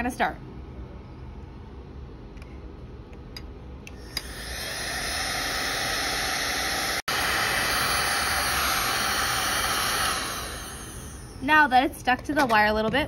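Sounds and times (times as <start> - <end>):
heat gun fan blowing hiss: 3.8 - 12.2.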